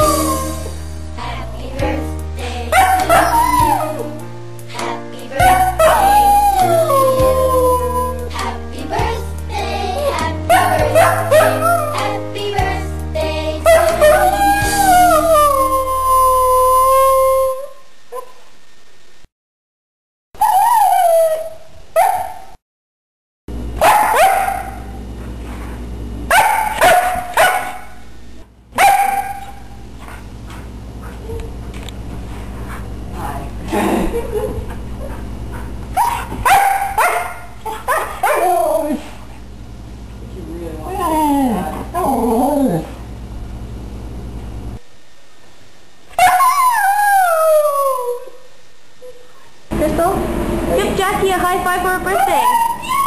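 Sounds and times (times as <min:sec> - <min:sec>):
husky howling and yipping: 0:02.7 - 0:04.2, 0:05.4 - 0:08.4, 0:10.1 - 0:12.1, 0:13.7 - 0:17.7, 0:36.0 - 0:39.1, 0:46.2 - 0:48.4, 0:52.1 - 0:53.0.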